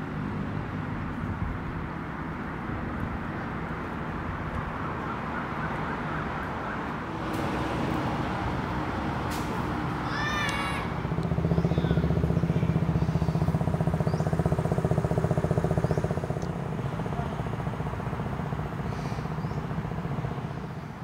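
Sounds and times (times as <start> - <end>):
small engine running: 7.1 - 21.0.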